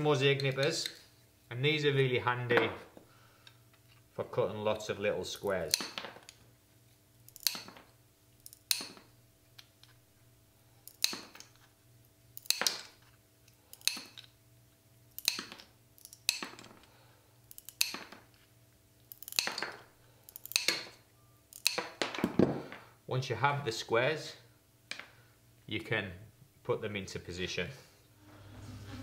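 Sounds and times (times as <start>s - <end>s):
tile nippers cracking tile: 5.5s - 6.4s, 7.2s - 10.0s, 10.8s - 14.3s, 15.1s - 18.4s, 19.0s - 22.3s.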